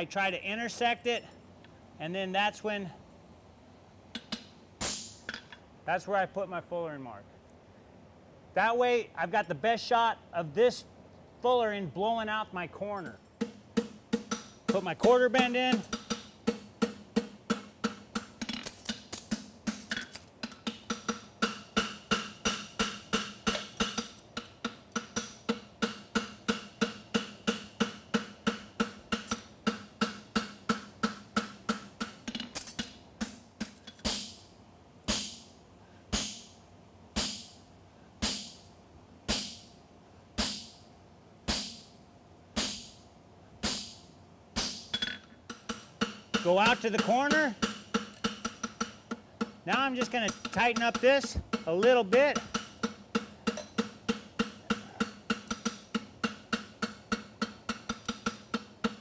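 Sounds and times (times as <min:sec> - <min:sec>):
hammer striking hot metal on anvil: 0:19.4 - 0:34.4, 0:38.2 - 0:38.6, 0:44.6 - 0:59.0
anvil ringing: 0:49.4 - 0:59.0.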